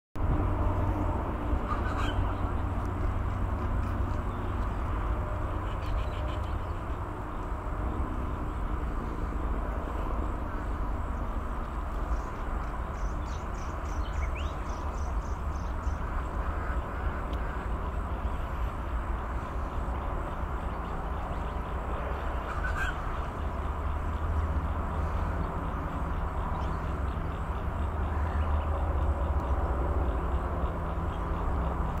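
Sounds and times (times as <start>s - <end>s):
steady low rumble: 0.2s - 32.0s
faint bird calls: 1.6s - 2.9s, 8.4s - 32.0s
bird rapid trill: 22.2s - 24.4s.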